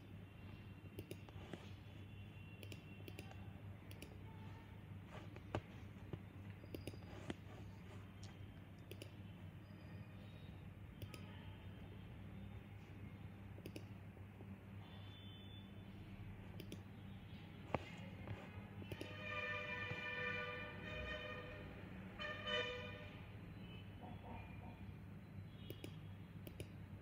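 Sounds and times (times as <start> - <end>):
low steady hum: 0.0 - 27.0
computer mouse clicks: 0.9 - 1.8, 2.5 - 4.4, 5.3 - 9.3, 10.9 - 11.4, 13.6 - 14.0, 16.5 - 17.0, 18.8 - 19.2, 25.6 - 26.8.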